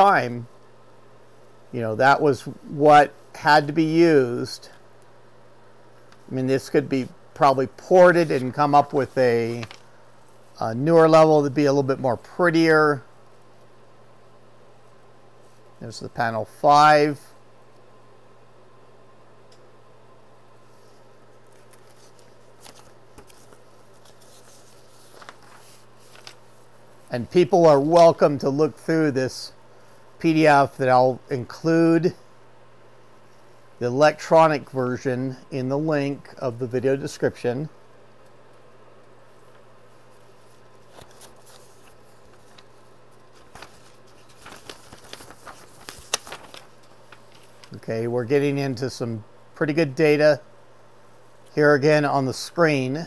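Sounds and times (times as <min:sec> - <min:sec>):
steady low hum: 0:00.0 - 0:53.0
paper pages rustling: 0:06.0 - 0:10.8, 0:20.8 - 0:28.2, 0:39.4 - 0:47.8.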